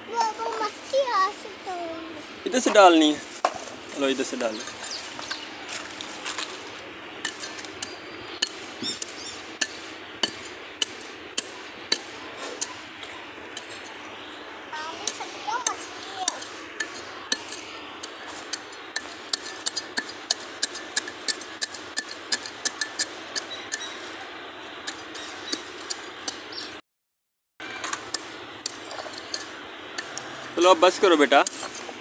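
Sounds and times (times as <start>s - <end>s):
digging tool striking stony soil: 7.2s - 12.8s, 15.0s - 24.0s, 24.8s - 26.8s, 27.8s - 32.0s.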